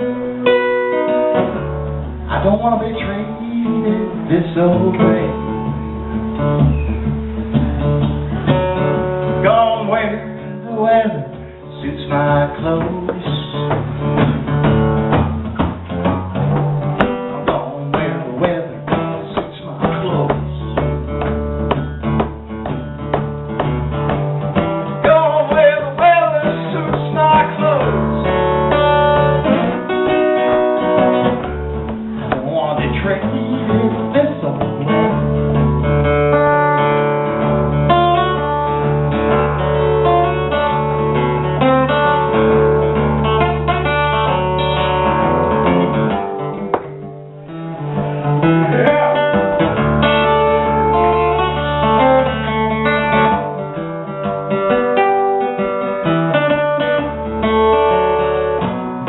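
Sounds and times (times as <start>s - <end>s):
acoustic guitar: 0.0s - 59.0s.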